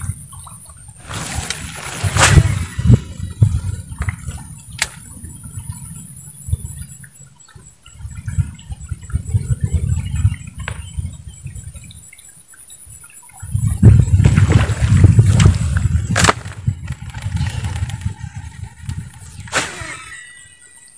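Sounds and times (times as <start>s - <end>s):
fishing line paying out: 17.0s - 20.9s.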